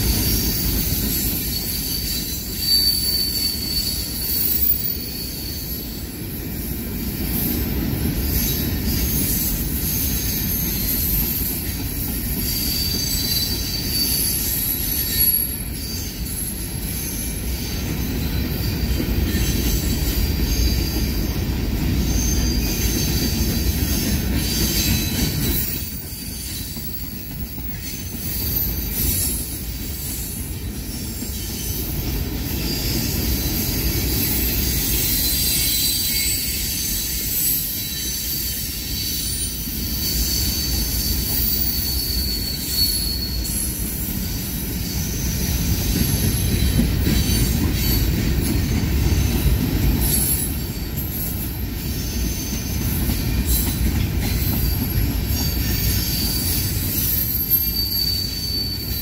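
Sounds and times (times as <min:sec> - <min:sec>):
train wheels rumbling on rail: 0:00.0 - 0:59.0
high-pitched wheel squeal: 0:00.1 - 0:06.1, 0:08.2 - 0:21.4, 0:32.6 - 0:59.0.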